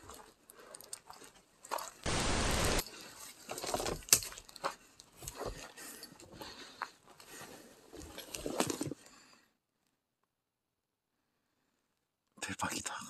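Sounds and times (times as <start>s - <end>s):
loud burst of noise: 2.1s - 2.8s.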